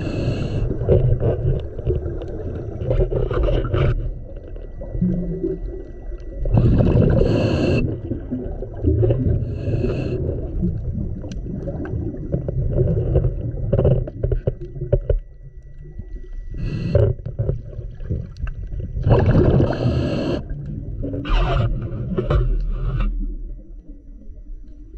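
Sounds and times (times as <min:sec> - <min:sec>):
regulator hissing inhalation: 0:00.0 - 0:00.8, 0:06.6 - 0:08.0, 0:09.4 - 0:10.2, 0:16.6 - 0:17.2, 0:19.6 - 0:20.5
bubbling exhaled air: 0:00.0 - 0:14.9, 0:16.5 - 0:23.6.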